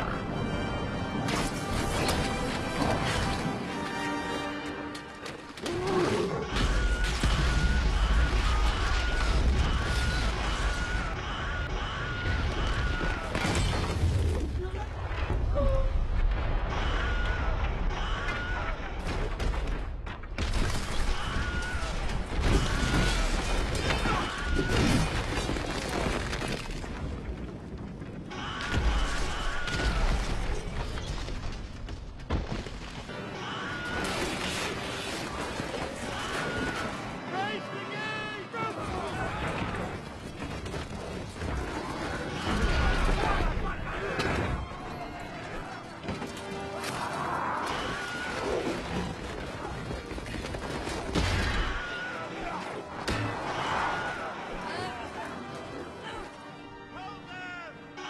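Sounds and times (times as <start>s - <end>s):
orchestral score: 0.0s - 13.4s, 33.0s - 58.0s
crashing debris: 17.6s - 33.1s.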